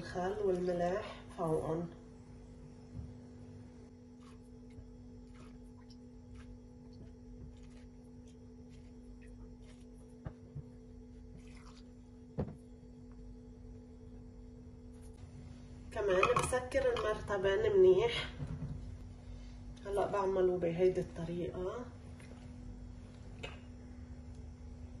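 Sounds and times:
low mains hum: 0.0s - 25.0s
brine trickling into glass jar: 11.3s - 12.0s.

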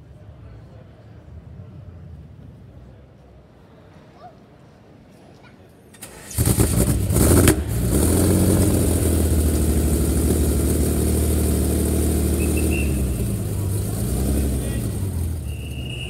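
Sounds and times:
car engine starting and idling: 6.0s - 16.0s.

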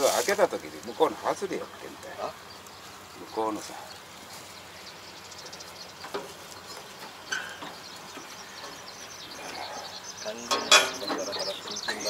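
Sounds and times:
straw rustling: 0.0s - 7.8s
faint bird chirps: 0.0s - 12.0s.

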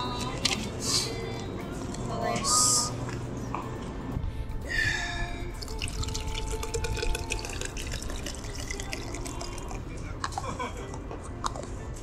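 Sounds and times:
drink pouring into bottle: 5.6s - 10.0s.

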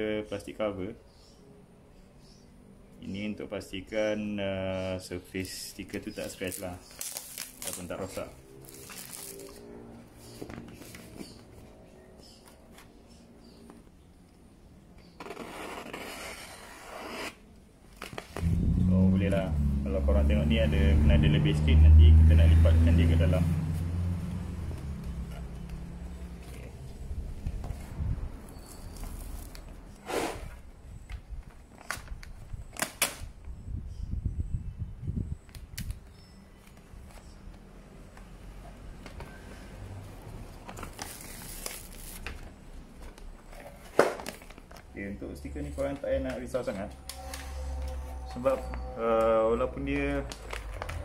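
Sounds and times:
vinyl film crackling: 5.9s - 9.6s, 40.7s - 42.5s, 50.2s - 51.0s
paper rustling: 50.2s - 51.0s.

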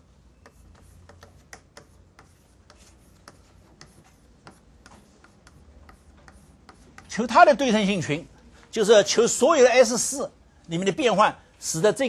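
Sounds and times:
chalk writing on a blackboard: 0.4s - 7.2s.

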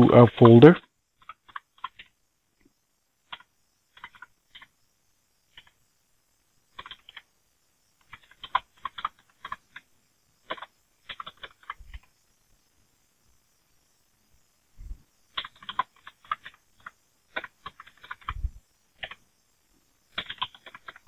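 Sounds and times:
keyboard typing: 0.1s - 2.2s, 3.2s - 4.8s, 5.5s - 5.8s, 6.7s - 7.3s, 8.0s - 12.2s, 15.3s - 19.3s, 20.1s - 21.0s.

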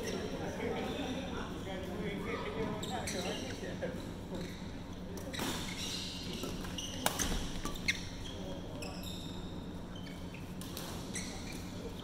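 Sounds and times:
shoes squeaking on court: 2.6s - 3.7s, 4.3s - 12.0s.

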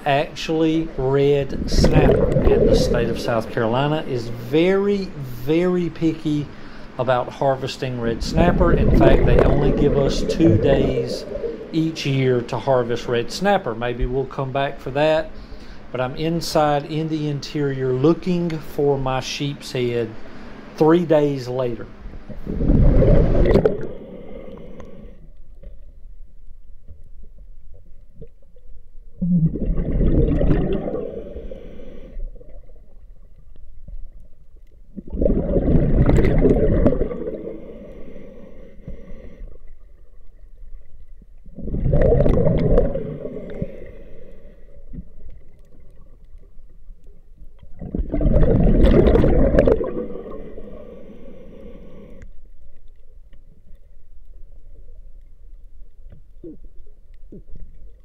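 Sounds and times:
diver bubbling exhalations: 1.5s - 3.6s, 8.2s - 11.8s, 29.2s - 32.2s, 35.0s - 37.7s, 41.6s - 43.8s, 47.8s - 50.8s.

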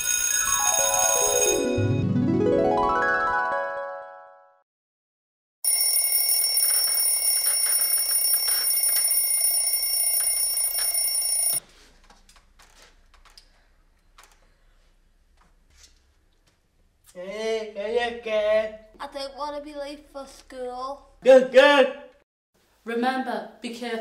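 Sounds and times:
alarm clock ringing: 0.0s - 2.0s, 5.6s - 11.6s
small clicks and rustles: 12.0s - 14.6s.

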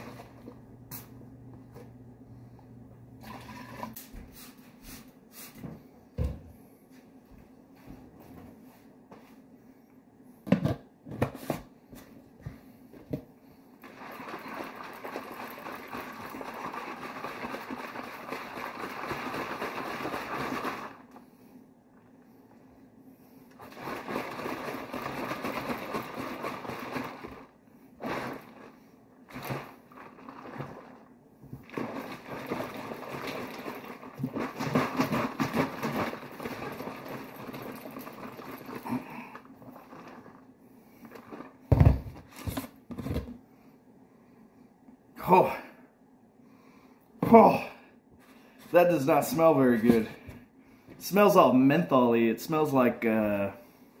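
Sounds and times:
liquid sloshing in plastic jug: 13.8s - 21.0s, 23.5s - 43.4s.

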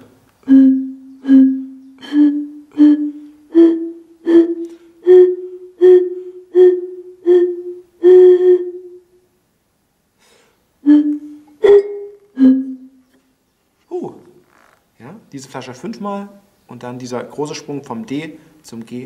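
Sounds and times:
blown glass bottle notes: 0.5s - 9.0s, 10.8s - 13.0s.

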